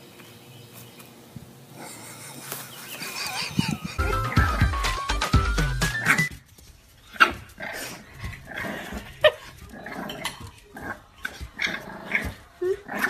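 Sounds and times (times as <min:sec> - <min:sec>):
dog grumbling: 0:07.6 - 0:13.0.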